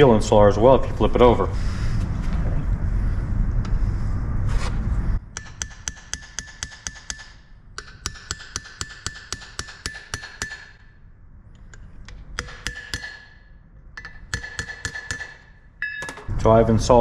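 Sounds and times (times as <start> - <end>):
hammer tapping on metal: 5.3 - 10.8, 11.6 - 13.4, 14.0 - 16.3.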